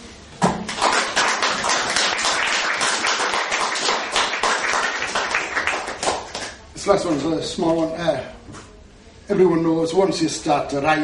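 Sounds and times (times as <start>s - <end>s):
audience clapping: 0.6s - 6.6s.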